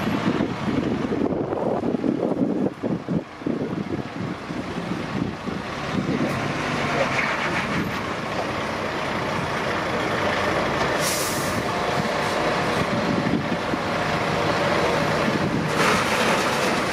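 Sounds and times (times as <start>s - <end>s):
diesel engines running: 0.0s - 16.9s
air brake hiss: 11.0s - 11.7s.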